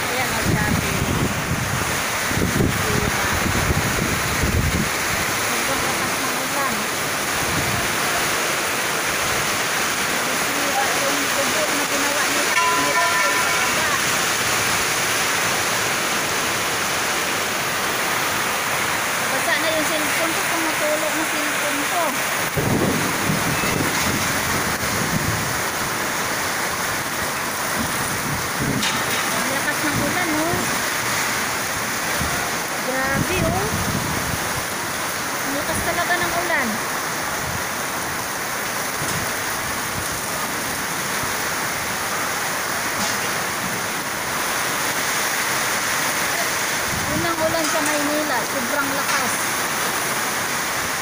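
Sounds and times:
heavy rain on roofs: 0:00.0 - 0:51.0
wind rumble on microphone: 0:00.2 - 0:05.3, 0:22.4 - 0:25.8, 0:27.7 - 0:30.7, 0:32.1 - 0:34.7, 0:46.8 - 0:47.5.

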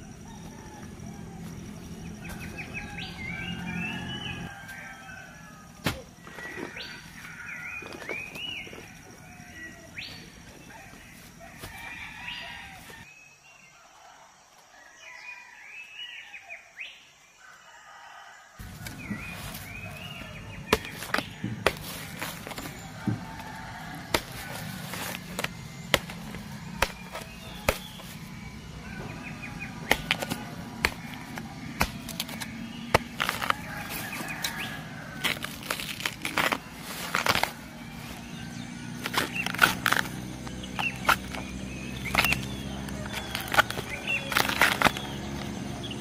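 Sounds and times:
machete chopping: 0:05.8 - 0:06.8, 0:18.6 - 0:28.2, 0:29.4 - 0:38.3, 0:38.9 - 0:45.6
sheaths cracking and tearing: 0:18.6 - 0:28.3, 0:29.5 - 0:45.9.

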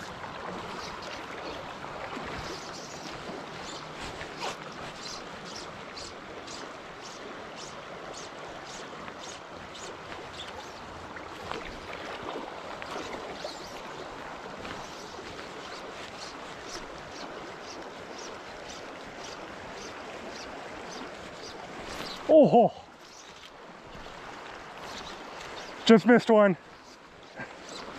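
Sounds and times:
river current rushing: 0:00.0 - 0:27.9
fishing line zipping: 0:02.2 - 0:07.8, 0:20.9 - 0:22.3.

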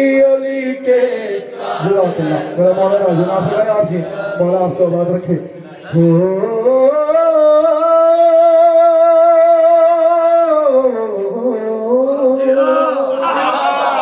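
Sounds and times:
man singing into microphone: 0:00.0 - 0:04.8, 0:05.7 - 0:13.3
voices singing: 0:00.0 - 0:04.9, 0:12.3 - 0:14.0.

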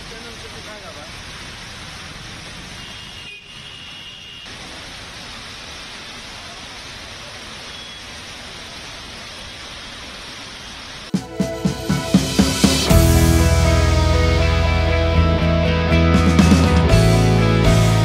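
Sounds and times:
traffic on wet roads: 0:00.0 - 0:11.1
heavy rain hissing: 0:00.0 - 0:18.0.

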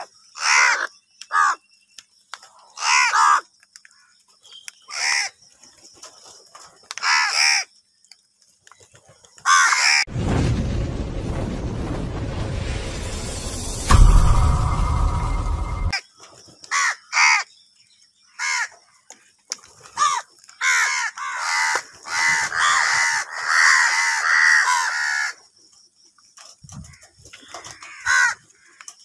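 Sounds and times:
crows cawing: 0:00.0 - 0:01.7, 0:02.4 - 0:04.1, 0:04.9 - 0:05.4, 0:06.9 - 0:07.7, 0:09.4 - 0:10.1, 0:16.7 - 0:17.5, 0:18.3 - 0:18.8, 0:19.9 - 0:25.4, 0:26.8 - 0:28.8
low rumbling sound effect: 0:10.1 - 0:15.9.

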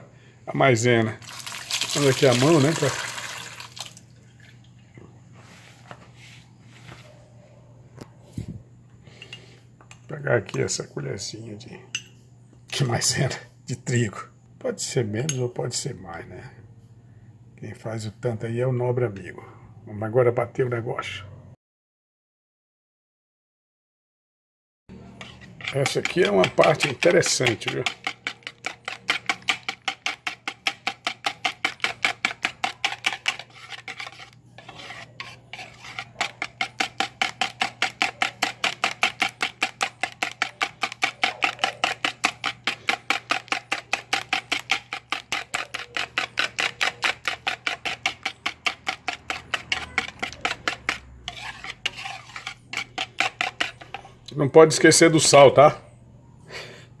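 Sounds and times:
whisk beating in plastic bowl: 0:01.3 - 0:03.5, 0:25.2 - 0:55.3.

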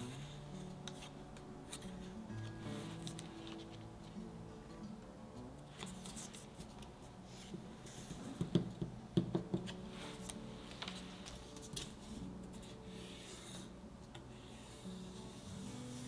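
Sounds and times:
light knocks and taps: 0:08.4 - 0:09.7.

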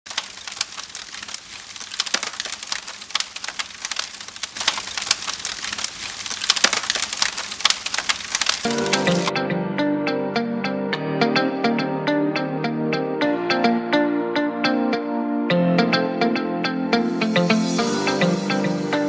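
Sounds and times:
fire crackling: 0:00.0 - 0:09.3
music: 0:08.6 - 0:19.0.

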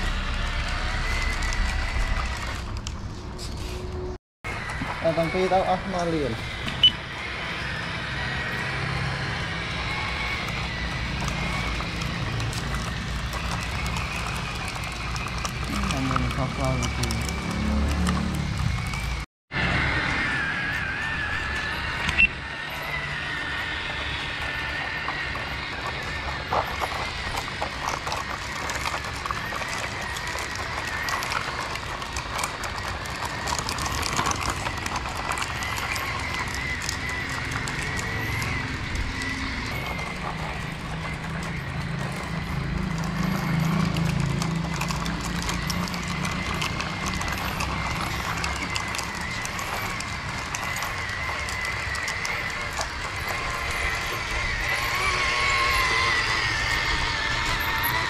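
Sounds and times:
toy truck motor whining: 0:00.0 - 0:58.0
plastic toy trucks clattering on concrete: 0:08.2 - 0:19.2, 0:22.9 - 0:58.0.

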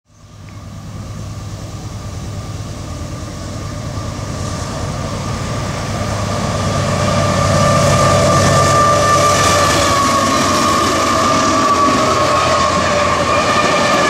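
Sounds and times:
diesel locomotive engine drone: 0:00.1 - 0:14.0
steady high whine: 0:00.1 - 0:14.0.

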